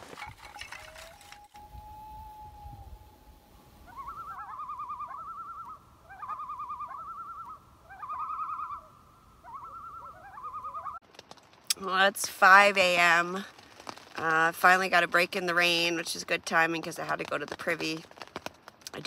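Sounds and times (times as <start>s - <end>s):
loon tremolo calls: 3.8s - 11.0s.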